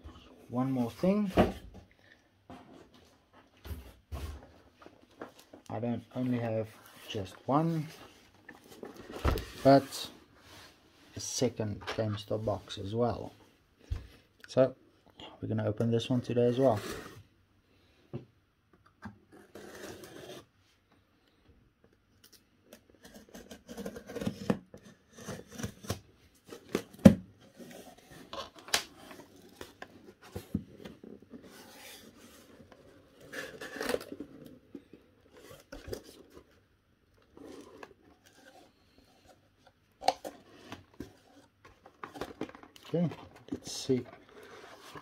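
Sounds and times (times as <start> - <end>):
cardboard scraping and tearing: 19.4 - 20.5, 23.0 - 36.5, 37.3 - 39.0.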